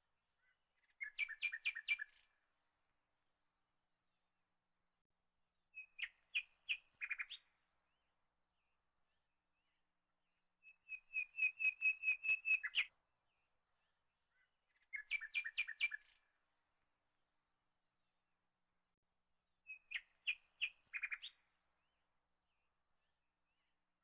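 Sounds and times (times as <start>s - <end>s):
small bird chirping: 0.4s - 2.3s, 5.8s - 7.5s, 10.6s - 12.9s, 14.3s - 16.2s, 19.7s - 21.5s.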